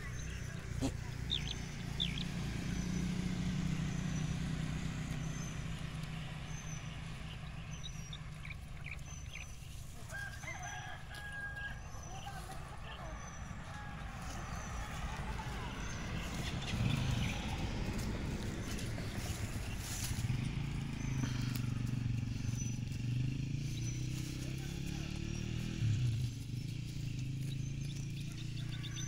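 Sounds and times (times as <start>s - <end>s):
low steady rumble: 0.0s - 29.0s
rooster crowing: 10.0s - 12.4s, 28.3s - 29.0s.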